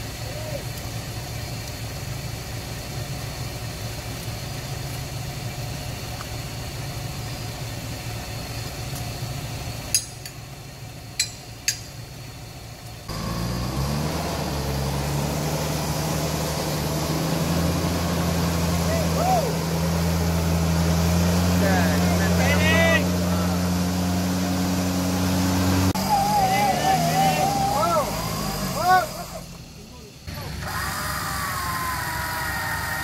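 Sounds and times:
vehicle engine idling: 0:00.0 - 0:33.0
engine revving harder: 0:13.1 - 0:29.5.

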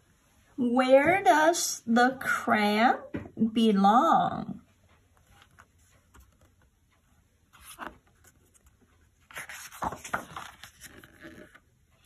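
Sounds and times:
book page rustling: 0:05.2 - 0:06.7, 0:07.5 - 0:11.7.

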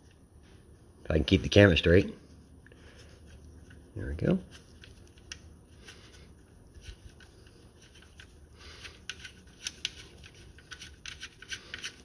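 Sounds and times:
small metallic clicks and scrapes: 0:06.8 - 0:12.0.

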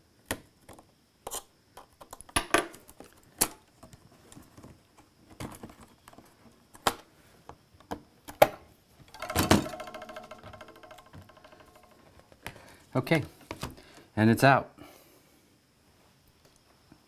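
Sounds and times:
dense clattering: 0:09.1 - 0:12.2.

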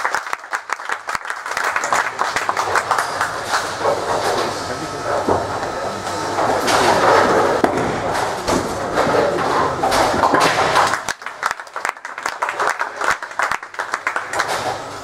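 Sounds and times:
people clapping: 0:00.0 - 0:04.5, 0:10.2 - 0:15.0
bowling pins crashing: 0:06.8 - 0:11.1.

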